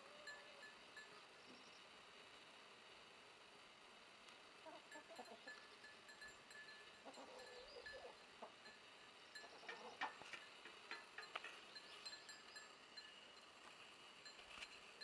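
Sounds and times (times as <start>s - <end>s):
faint high chirps: 5.0s - 9.8s, 11.2s - 13.5s.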